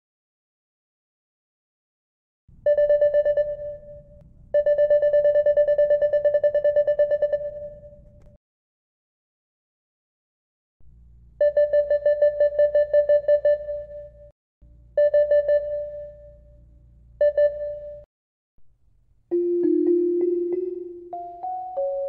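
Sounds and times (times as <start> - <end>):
keyboard melody: 19.3 - 22.0.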